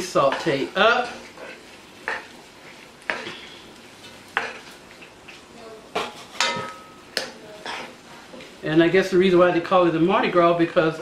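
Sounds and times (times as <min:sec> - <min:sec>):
wooden spoon scraping a pot: 0:00.0 - 0:05.4
vegetables sizzling: 0:00.0 - 0:11.0.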